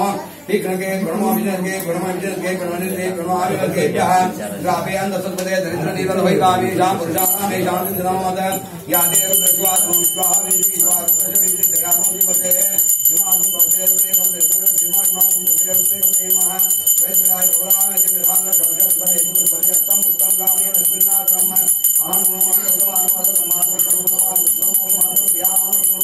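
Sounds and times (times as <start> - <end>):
voices singing a chant: 0.0 - 26.0
hand bell ringing rapidly: 7.2 - 8.1, 8.9 - 26.0.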